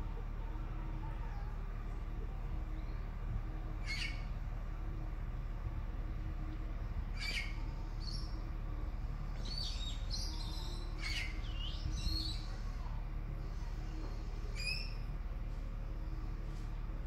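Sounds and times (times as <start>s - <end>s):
steady low rumble: 0.0s - 17.0s
birds chirping: 2.7s - 4.4s, 7.1s - 8.6s, 9.2s - 12.6s, 13.4s - 15.1s.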